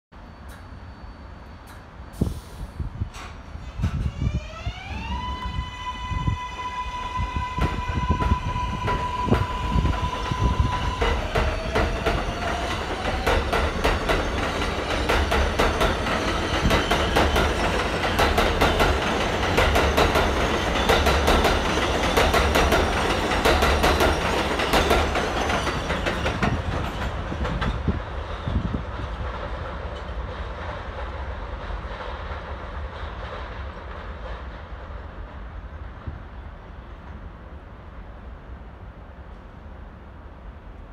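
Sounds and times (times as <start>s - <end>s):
train electric whine: 0.2s - 28.8s
train wheels clattering on track: 1.6s - 4.2s, 7.3s - 36.4s.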